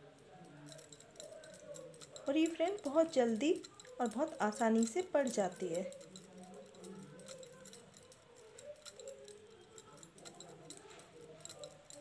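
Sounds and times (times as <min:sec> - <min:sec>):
knitting needles clicking: 0:00.0 - 0:12.0.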